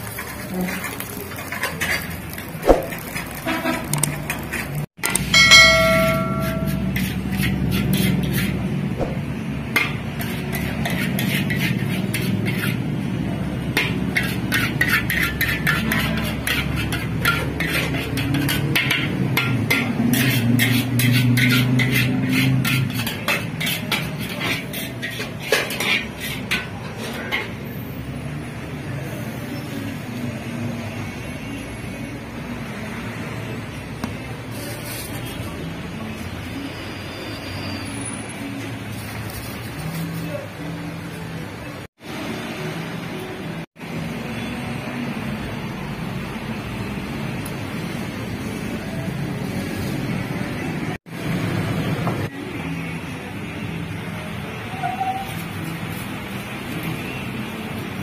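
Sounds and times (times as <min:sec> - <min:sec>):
metal spatula scraping wok: 0:00.0 - 0:28.3, 0:34.4 - 0:41.2.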